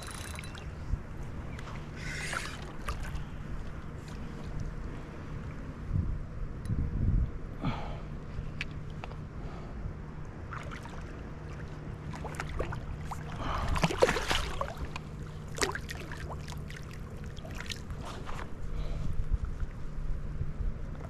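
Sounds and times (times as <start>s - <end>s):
water splashing and dripping: 12.0s - 17.9s.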